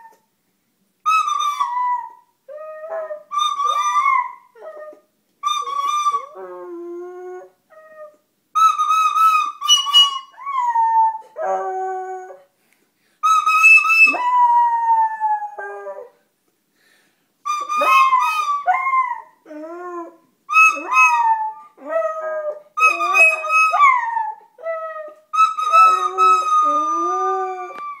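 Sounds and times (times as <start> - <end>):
flute notes: 8.6 - 12.2, 17.5 - 19.1, 19.8 - 28.0
dog howling: 17.7 - 28.0.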